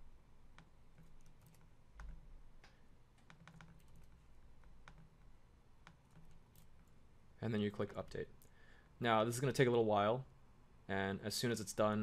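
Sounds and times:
mouse clicks: 0.5 - 7.0
keyboard keystrokes: 0.6 - 5.2.

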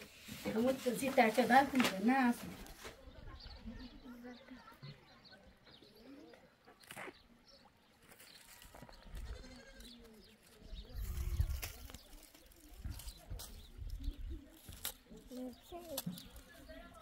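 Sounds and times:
livestock bleating: 9.2 - 10.1.

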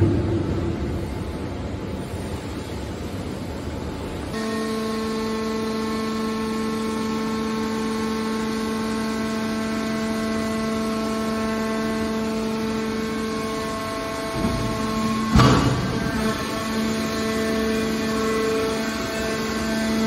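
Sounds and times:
low rumbling noise: 0.0 - 4.3
hydraulic baler humming: 4.3 - 20.0.

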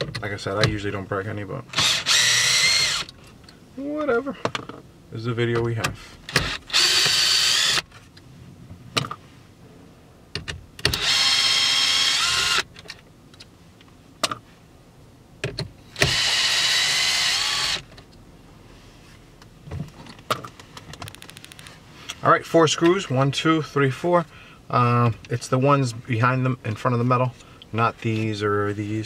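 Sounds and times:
cordless drill whining: 1.8 - 3.1, 6.4 - 7.8, 11.0 - 12.7, 16.0 - 17.8.

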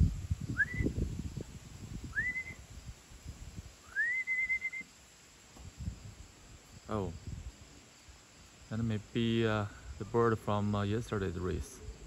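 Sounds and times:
person whistling: 2.2 - 2.6, 3.9 - 4.8.

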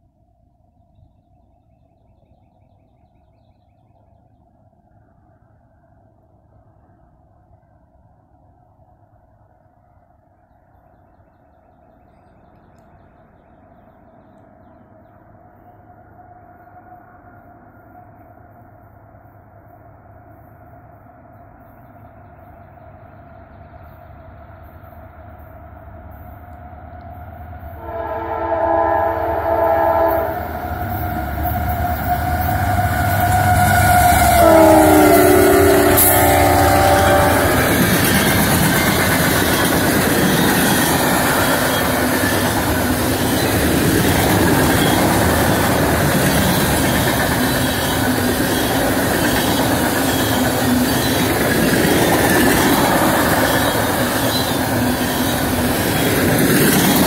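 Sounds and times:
train horn blasts: 27.8 - 38.0
train wheels clacking on rails: 29.1 - 57.0.

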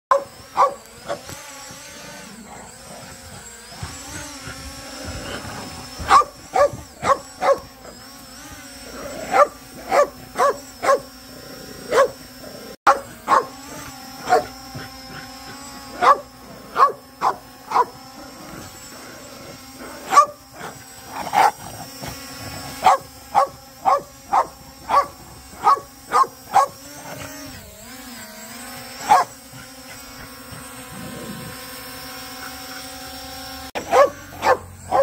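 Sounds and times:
small dog barking: 0.1 - 1.4, 5.3 - 8.0, 9.2 - 11.1, 11.9 - 12.2, 12.9 - 18.0, 20.0 - 21.7, 22.6 - 27.2, 29.0 - 29.7, 33.8 - 35.0
drone propellers humming: 0.1 - 35.0.

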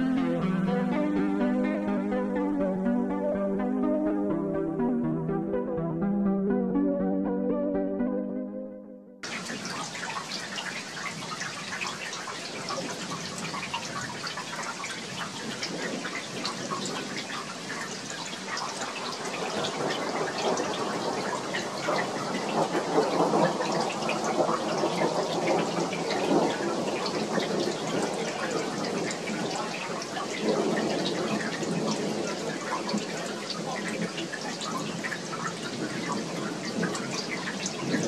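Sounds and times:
heavy rain falling: 9.2 - 38.0.

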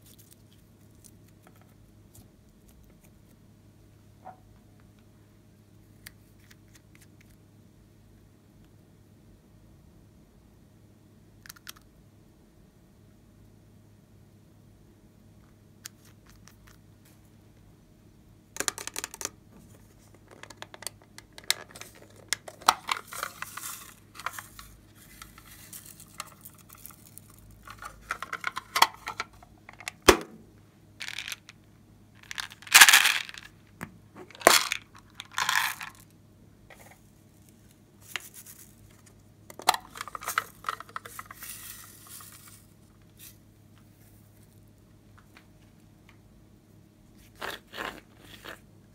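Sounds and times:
plastic containers clicking and clattering: 18.6 - 19.4, 20.2 - 26.8, 27.6 - 30.3, 31.0 - 31.6, 32.2 - 33.5, 34.2 - 36.0, 39.5 - 42.6.

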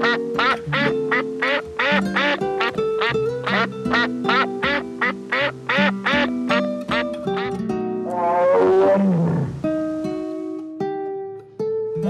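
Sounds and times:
duck quacking: 0.0 - 7.6
background music: 0.0 - 12.0.

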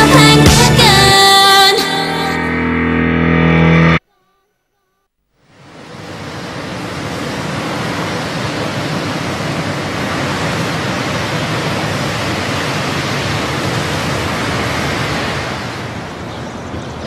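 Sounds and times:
steady rushing noise: 5.4 - 17.0.

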